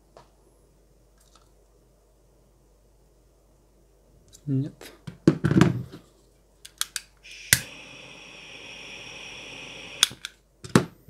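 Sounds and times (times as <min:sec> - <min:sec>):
torch igniter click: 0:06.7 - 0:10.4
torch flame hissing: 0:07.2 - 0:10.3.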